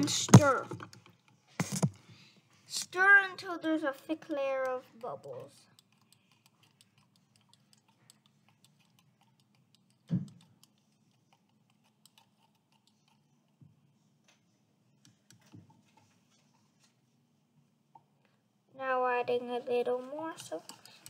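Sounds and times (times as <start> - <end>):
stick stirring soapy water: 4.7 - 14.0, 20.3 - 21.0.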